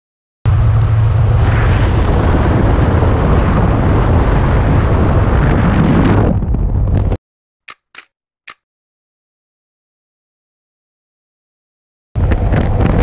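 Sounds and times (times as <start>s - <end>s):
wind rushing over microphone: 0.5s - 7.2s, 12.2s - 13.0s.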